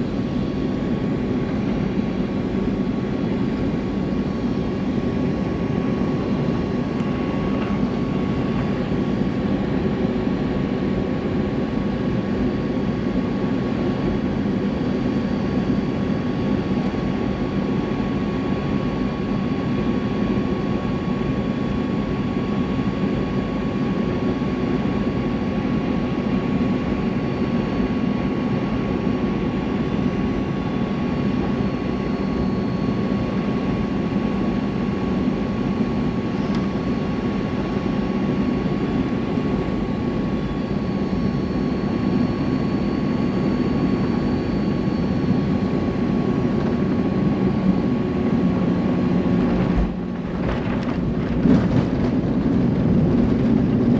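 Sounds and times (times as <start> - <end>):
jet engine and airflow noise: 0.0 - 53.9
thin steady whine: 24.2 - 53.9.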